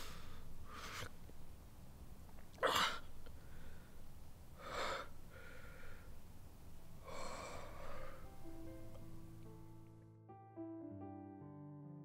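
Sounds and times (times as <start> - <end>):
man gasping breaths: 2.6 - 4.0, 4.6 - 6.2, 7.0 - 8.4.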